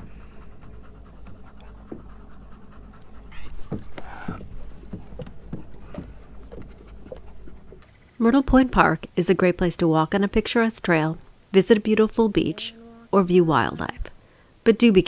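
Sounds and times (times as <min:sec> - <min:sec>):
dogs panting: 0:00.0 - 0:08.0.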